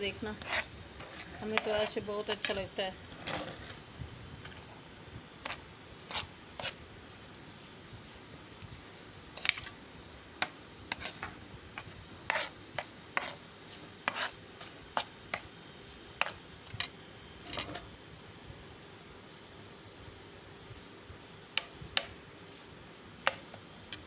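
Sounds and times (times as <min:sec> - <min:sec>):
spoon scraping frying pan: 0:00.2 - 0:02.6, 0:10.4 - 0:13.4, 0:14.0 - 0:15.2.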